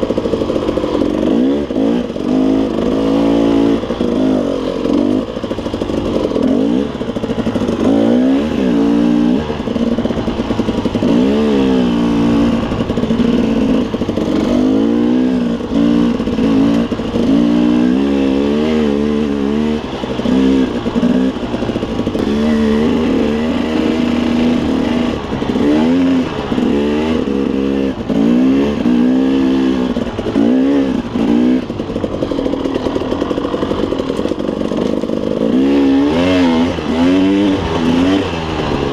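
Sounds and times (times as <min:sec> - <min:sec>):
dirt bike engine revving: 0:00.0 - 0:38.9.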